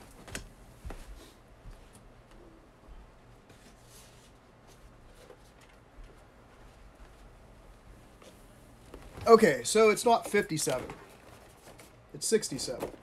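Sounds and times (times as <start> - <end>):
rustling: 8.0 - 13.0.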